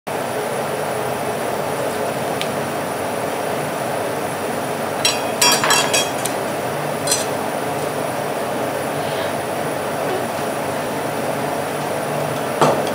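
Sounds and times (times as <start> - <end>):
refrigeration unit humming: 0.1 - 12.9
metal spatula clinking on plate: 5.1 - 6.3.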